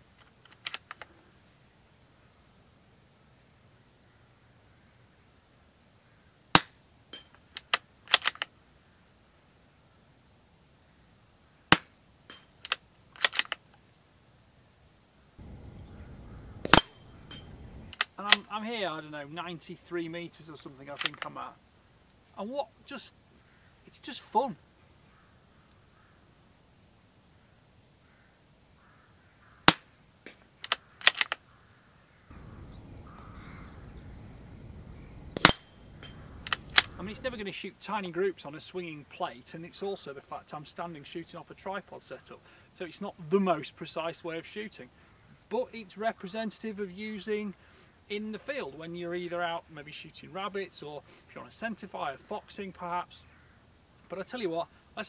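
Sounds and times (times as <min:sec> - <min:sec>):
rifle bolt clicks: 0:00.4 - 0:01.1, 0:07.6 - 0:08.5, 0:12.6 - 0:13.6, 0:16.6 - 0:18.4, 0:21.0 - 0:21.3, 0:29.7 - 0:31.4, 0:35.4 - 0:37.2
crows cawing: 0:06.0 - 0:06.4, 0:15.4 - 0:17.9, 0:23.3 - 0:23.9, 0:24.8 - 0:26.4, 0:27.3 - 0:30.0, 0:30.7 - 0:37.4, 0:44.9 - 0:45.4, 0:53.2 - 0:53.8
suppressed rifle shots: 0:15.4 - 0:18.1, 0:32.3 - 0:33.7, 0:35.4 - 0:37.3
ring of steel plate target: 0:16.6 - 0:17.9, 0:35.4 - 0:36.3.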